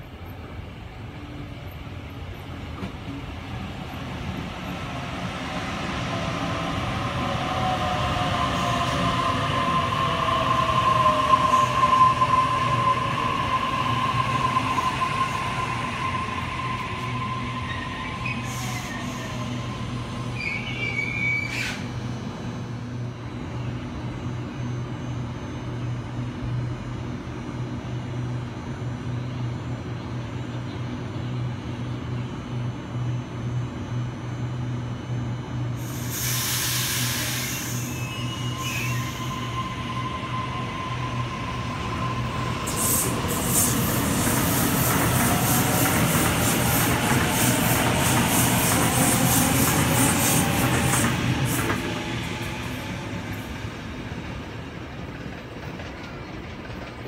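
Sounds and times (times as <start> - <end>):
train low hum: 0.0 - 57.0
train brake squeal: 9.9 - 22.0, 35.8 - 53.0
short high squeal: 13.8 - 19.6, 20.2 - 21.9, 36.0 - 43.8.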